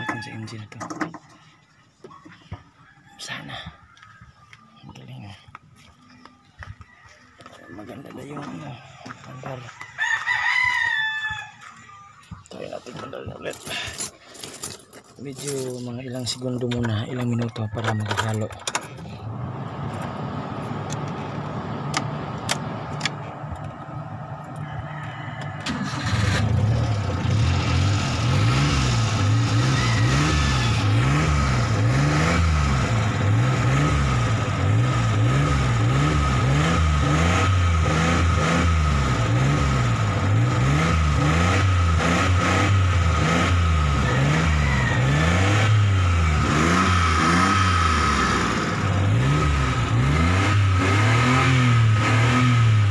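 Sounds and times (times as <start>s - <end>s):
van engine revving: 18.3s - 24.6s, 25.6s - 52.9s.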